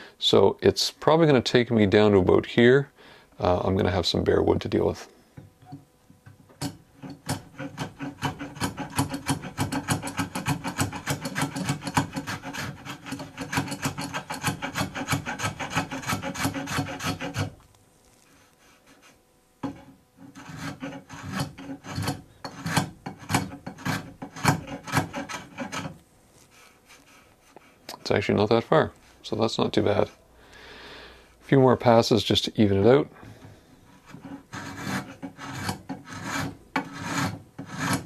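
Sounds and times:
spokeshave scraping wood: 6.6s - 28.2s, 33.3s - 38.0s.

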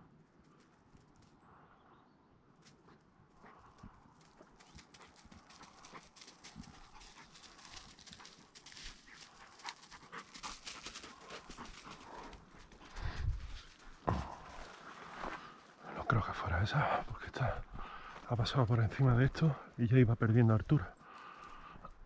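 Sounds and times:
footsteps through dry leaves: 4.7s - 15.6s.

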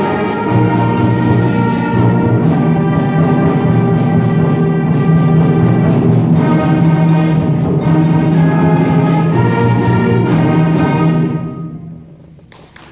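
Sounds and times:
bright high ringing notes: 0.0s - 2.2s, 6.4s - 12.0s
concert band playing chords: 0.0s - 12.0s.

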